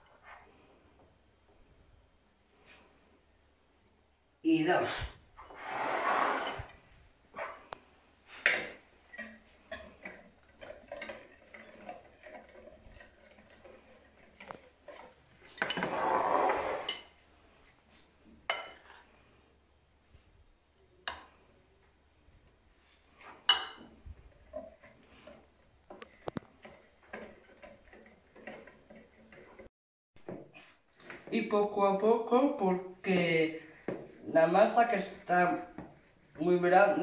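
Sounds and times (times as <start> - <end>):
whisk scraping in plastic bowl: 9.2 - 17.0, 24.4 - 29.7.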